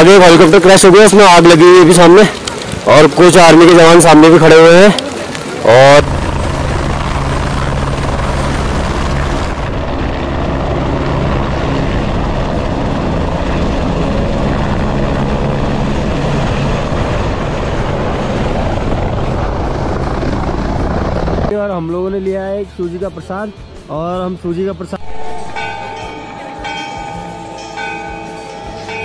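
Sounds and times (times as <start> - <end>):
helicopter rotor and engine: 0.0 - 29.0.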